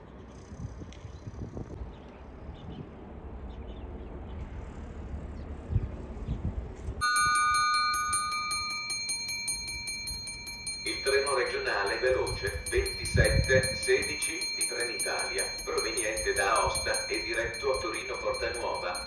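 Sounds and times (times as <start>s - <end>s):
low rumble: 0.7s - 7.0s
electric bell ringing: 7.0s - 19.0s.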